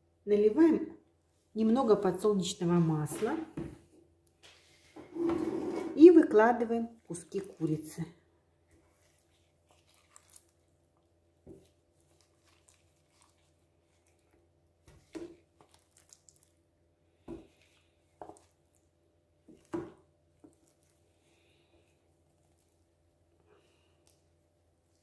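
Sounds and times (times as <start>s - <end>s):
soft wet thuds of chicken pieces: 11.4s - 16.4s, 19.4s - 21.0s.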